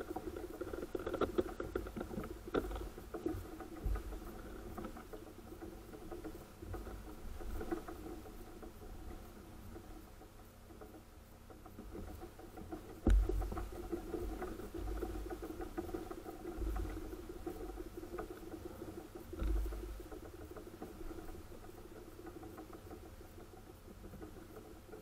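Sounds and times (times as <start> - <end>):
gear handling taps and clicks: 12.0 - 15.8
dull thump: 13.0 - 13.7.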